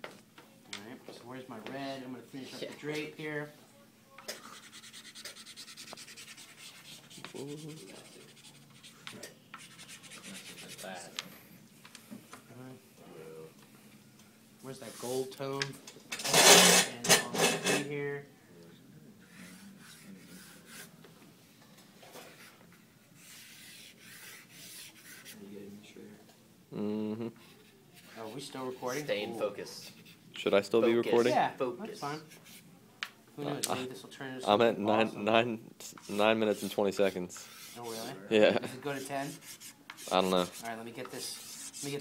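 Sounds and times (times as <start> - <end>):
pastel scratching on paper: 4.3 - 11.1, 19.2 - 21.0, 23.2 - 25.4, 32.2 - 32.6, 35.9 - 38.2, 39.0 - 42.0.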